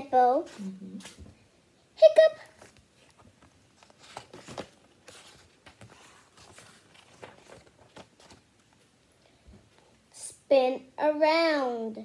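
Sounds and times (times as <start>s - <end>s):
book pages rustling and turning: 0.3s - 1.4s, 2.4s - 10.0s.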